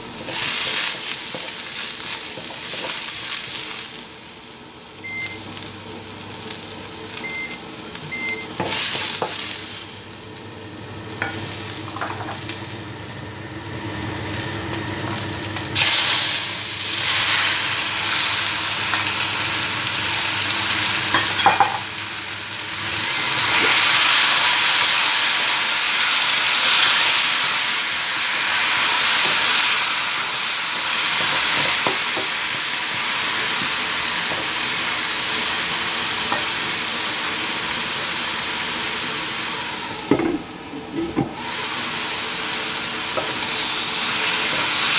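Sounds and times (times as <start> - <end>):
food sizzling in oil: 0.0 - 40.7, 41.4 - 44.9.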